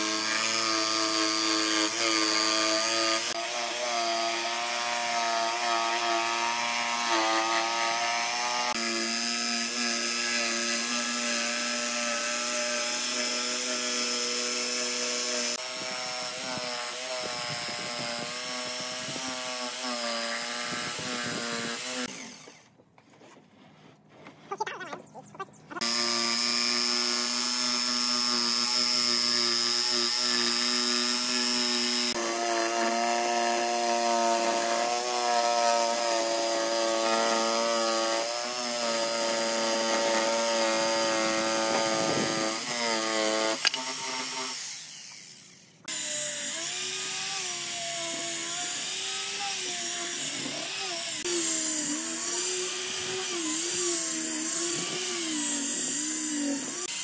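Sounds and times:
electric jigsaw cutting wood: 0.0s - 22.8s, 25.8s - 57.0s
angle grinder sanding wood: 0.0s - 25.1s, 25.7s - 57.0s.

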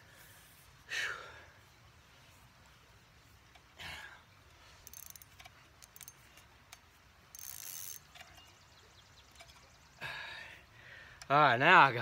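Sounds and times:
rustling hiss: 0.0s - 11.4s
fishing reel clicking: 4.8s - 6.2s, 7.3s - 8.3s.

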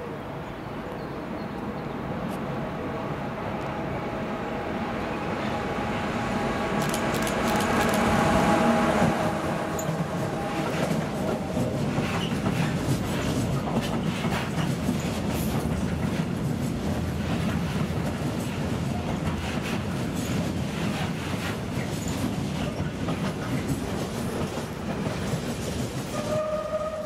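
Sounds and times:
electric locomotive humming: 0.2s - 14.1s.

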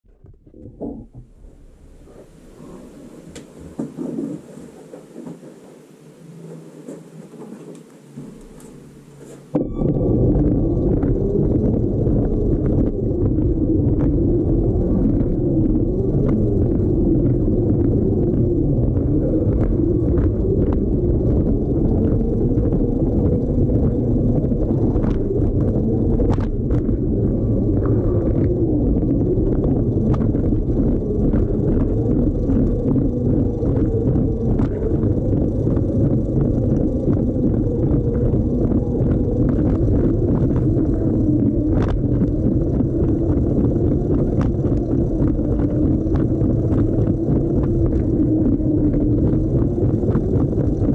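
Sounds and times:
toy train motor rumbling on track: 10.6s - 50.9s.

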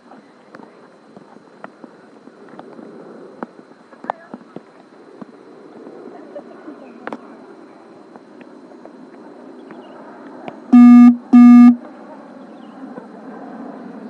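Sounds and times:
low buzzy horn blasts: 10.8s - 11.8s.

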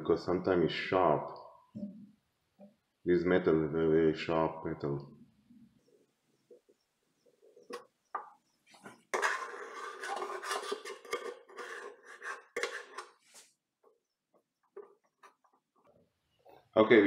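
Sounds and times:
metal tool scraping steel: 9.1s - 13.2s.

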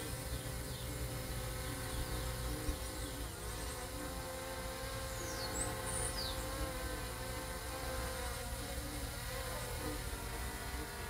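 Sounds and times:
drone buzzing hum: 0.0s - 11.0s
bird chirps: 5.1s - 6.6s.

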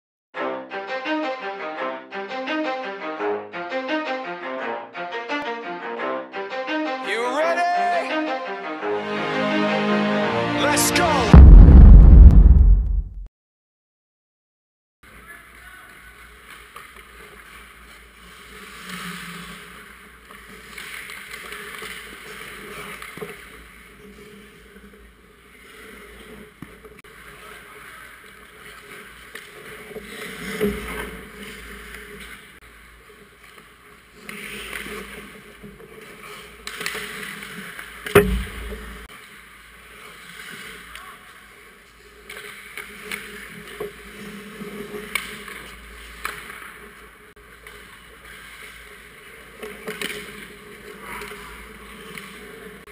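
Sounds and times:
hockey sticks and puck clacking: 15.9s - 24.9s, 25.5s - 39.1s, 39.9s - 52.8s
skates scraping on ice: 15.9s - 38.2s, 39.0s - 52.9s
sharp puck impact: 38.1s - 39.1s.

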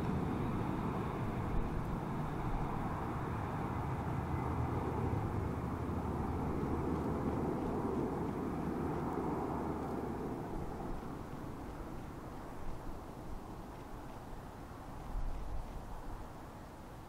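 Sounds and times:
turboprop aircraft flying past: 0.0s - 13.4s.

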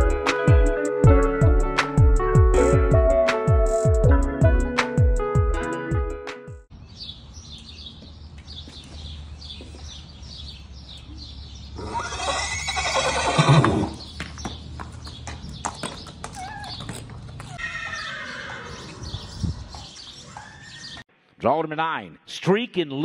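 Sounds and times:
horse whinnying: 11.8s - 14.0s, 17.5s - 19.3s.

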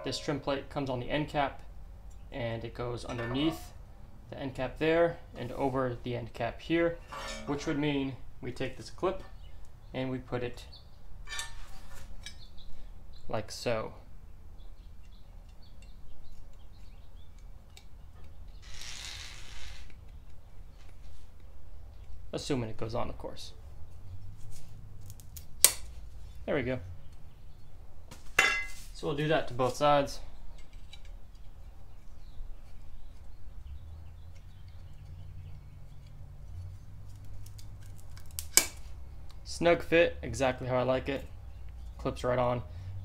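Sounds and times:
low steady hum: 0.0s - 9.5s
handling plastic clips and trim: 35.8s - 39.4s.

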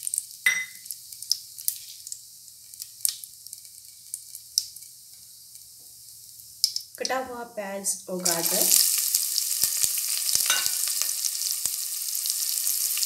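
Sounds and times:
crackles and pops: 0.0s - 7.2s
spices frying in hot oil: 0.0s - 13.0s.

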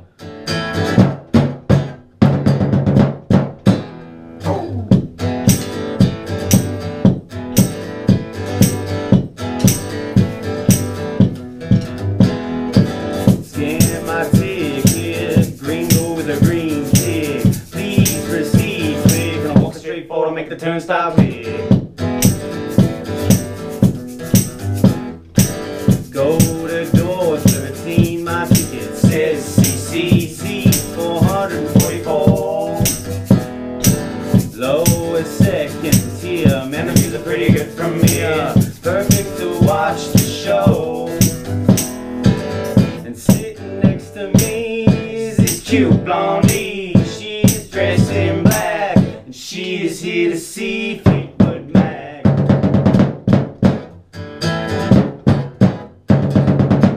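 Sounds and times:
strummed acoustic guitar: 0.0s - 56.9s
drumstick percussion beat: 0.8s - 19.8s, 21.2s - 49.3s, 51.0s - 53.9s
person singing: 4.4s - 4.9s, 13.4s - 21.7s, 26.0s - 33.4s, 34.3s - 41.9s, 42.8s - 52.3s.

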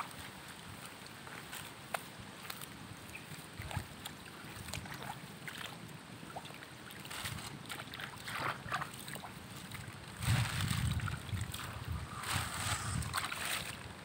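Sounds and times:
splashing in shallow water: 0.0s - 14.0s.

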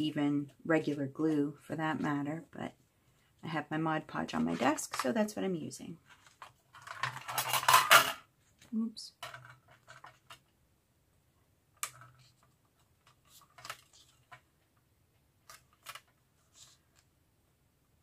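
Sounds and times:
paper rustling and tapping: 11.8s - 14.7s, 15.4s - 17.1s.

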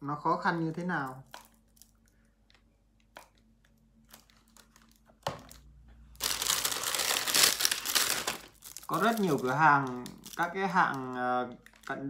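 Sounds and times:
plastic bag crinkling: 1.0s - 12.0s.

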